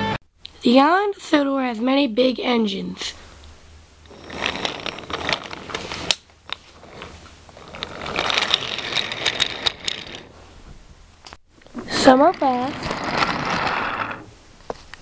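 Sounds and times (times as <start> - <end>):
toy train wheels rattling: 4.1 - 10.3, 11.8 - 14.2.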